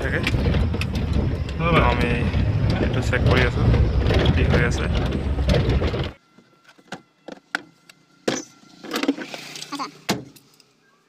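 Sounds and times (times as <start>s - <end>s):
dashboard rattling: 0.0s - 6.2s
scattered clicks and rattles: 0.0s - 6.2s
car engine and road noise: 0.0s - 10.8s.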